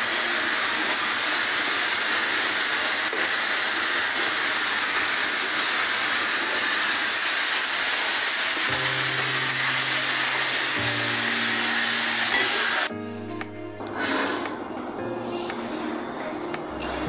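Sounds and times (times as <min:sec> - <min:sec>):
kitchen equipment hissing: 0:00.0 - 0:12.9, 0:13.9 - 0:14.6.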